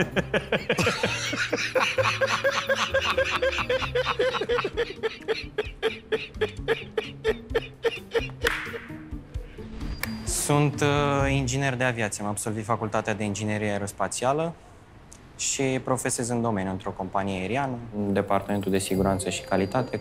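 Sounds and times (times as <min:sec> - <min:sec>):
person laughing: 0:00.0 - 0:08.9.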